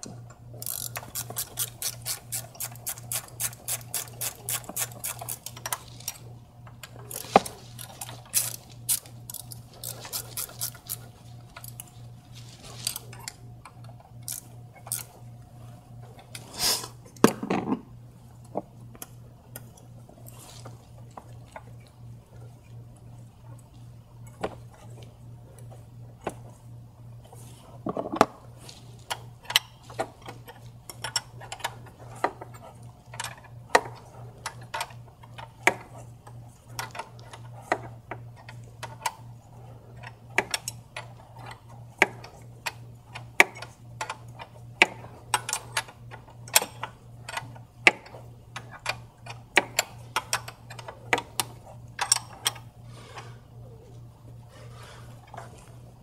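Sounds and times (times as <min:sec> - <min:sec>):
ratchet wrench clicking: 0:00.6 - 0:05.8, 0:07.8 - 0:11.0, 0:14.2 - 0:15.1.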